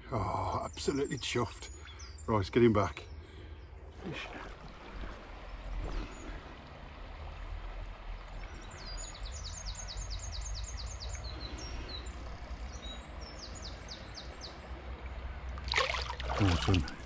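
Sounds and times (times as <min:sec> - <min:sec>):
songbird singing: 0:00.0 - 0:17.0
river rushing: 0:15.3 - 0:17.0.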